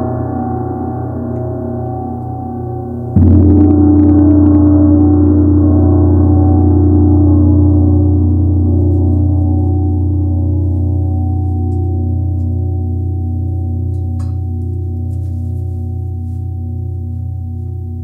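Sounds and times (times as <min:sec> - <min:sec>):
gong ringing with deep hum: 0:00.0 - 0:18.0.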